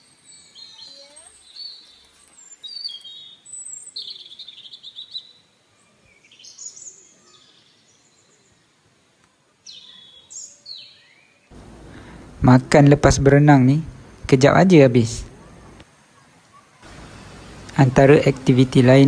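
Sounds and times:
birds chirping and calling: 0.0s - 8.6s, 9.6s - 12.1s.

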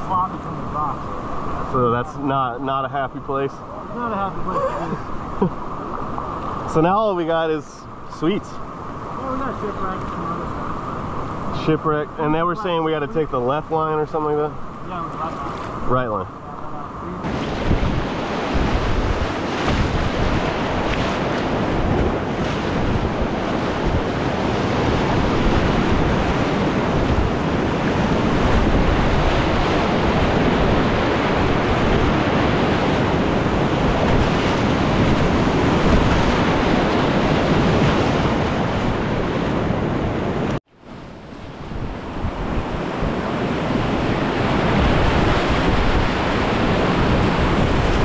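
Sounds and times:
whitewater rapid rushing: 8.2s - 15.9s.

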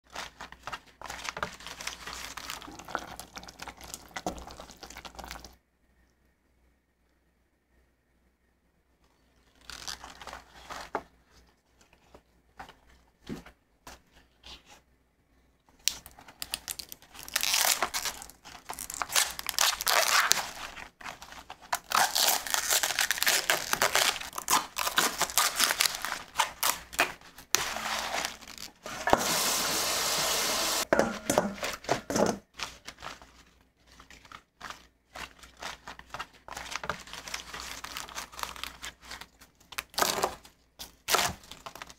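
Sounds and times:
leaves tearing: 15.9s - 20.5s, 21.8s - 30.8s
leaves crinkling and rustling: 16.4s - 30.8s, 32.6s - 39.4s.

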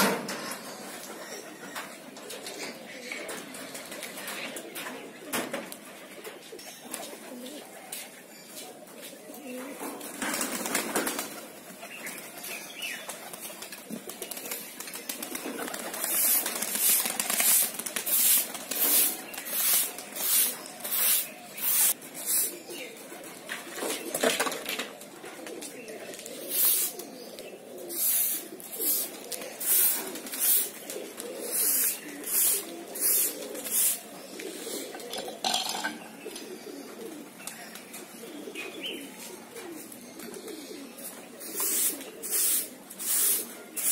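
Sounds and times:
pigeons cooing: 0.0s - 43.9s
broom sweeping concrete: 16.0s - 22.7s, 26.4s - 27.0s, 27.9s - 34.7s, 41.1s - 43.9s.

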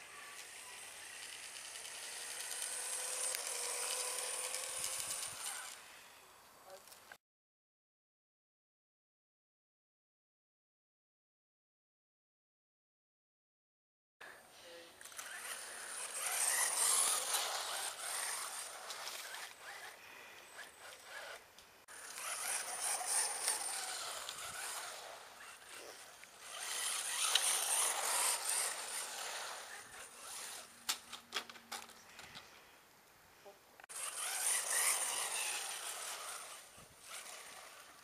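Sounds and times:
rc car motor and tyres: 0.0s - 7.2s, 14.9s - 32.7s, 33.8s - 38.0s.

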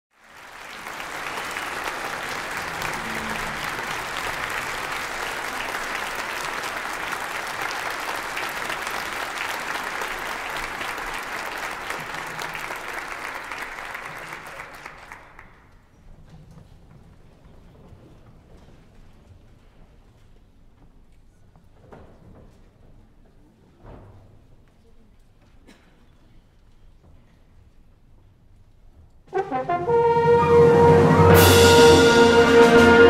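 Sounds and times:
audience applauding: 0.1s - 15.6s.

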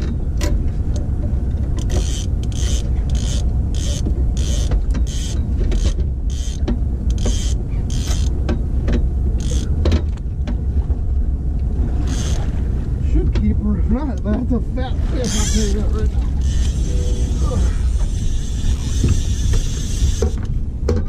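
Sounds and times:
steady low rumble: 0.0s - 21.0s
fishing reel whirring: 1.9s - 8.3s, 9.4s - 9.7s, 12.1s - 12.4s, 15.2s - 20.4s.

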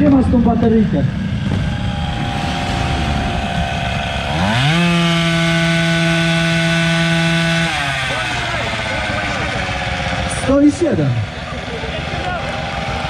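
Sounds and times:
motorcycle engine idling and revving: 0.0s - 13.0s.

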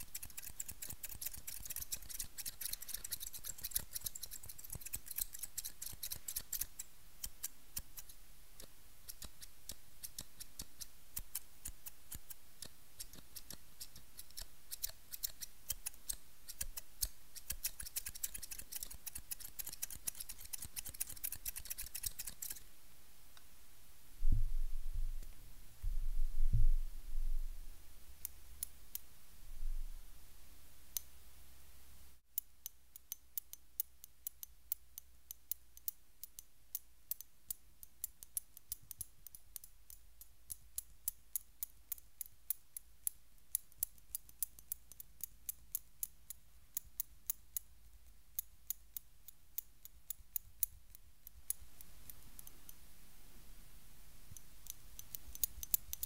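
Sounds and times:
scissors snipping rapidly: 0.0s - 22.6s.

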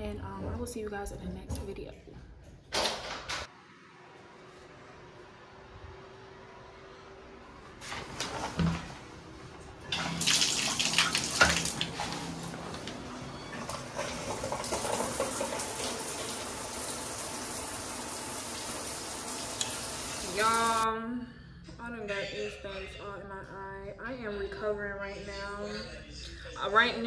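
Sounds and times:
shower spray hitting tile wall: 10.0s - 12.0s.

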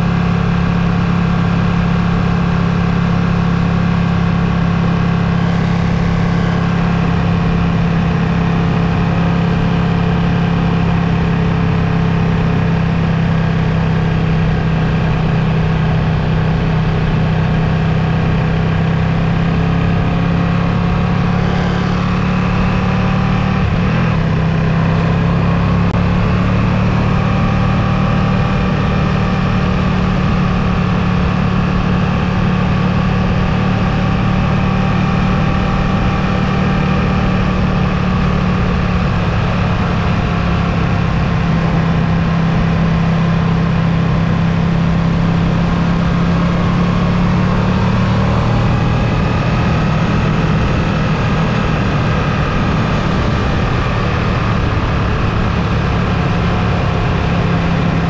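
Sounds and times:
constant rushing noise: 0.0s - 13.1s
motorcycle engine running: 0.0s - 58.0s.

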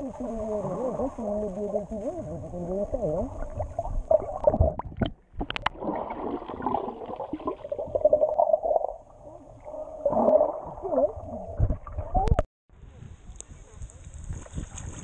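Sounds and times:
muffled underwater gurgling: 0.0s - 5.0s.

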